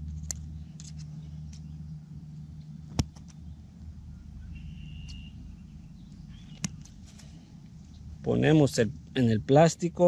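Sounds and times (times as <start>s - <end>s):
steady low rumble: 0.0s - 10.0s
short whistled note: 4.5s - 5.4s.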